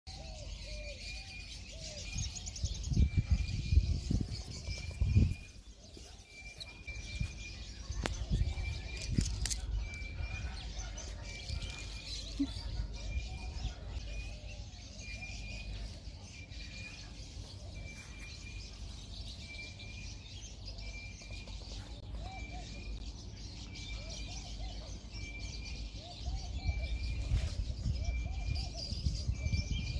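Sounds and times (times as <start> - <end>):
wind rumbling on microphone: 2.1 - 5.7, 6.6 - 14.4, 26.3 - 29.9.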